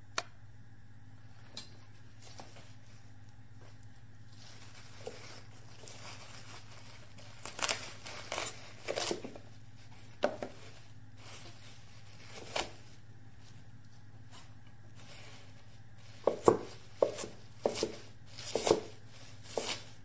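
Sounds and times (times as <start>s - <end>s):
knife cutting pepper on wooden board: 16.2s - 19.9s.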